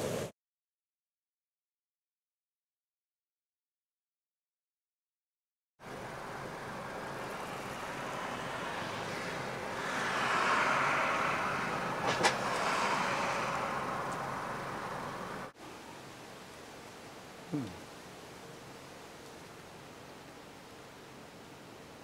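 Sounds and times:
passing vehicle rushing: 5.9s - 15.6s.

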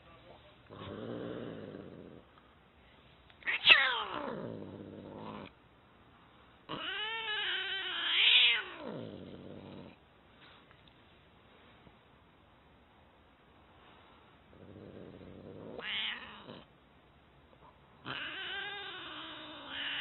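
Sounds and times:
cat yowling: 3.4s - 4.4s, 6.7s - 8.9s, 15.8s - 16.6s, 18.0s - 20.0s.

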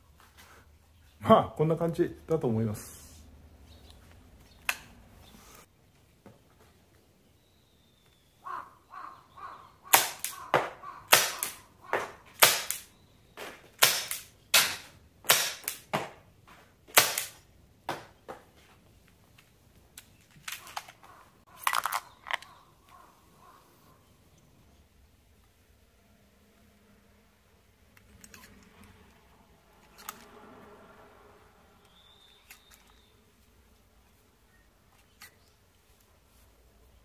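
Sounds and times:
gas revolver shots: 9.9s - 16.2s, 16.9s - 17.4s.

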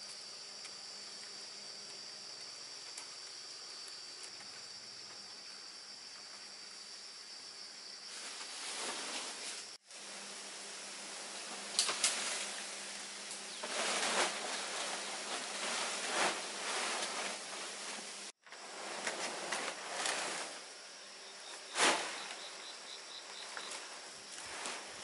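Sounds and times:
insects: 0.0s - 25.0s
dry leaves rustling and crackling: 11.2s - 20.7s.

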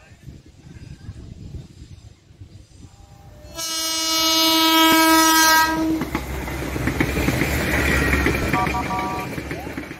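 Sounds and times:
train rumble and wheel clatter: 0.0s - 9.9s
locomotive horn blast: 3.4s - 6.1s, 8.6s - 9.4s.

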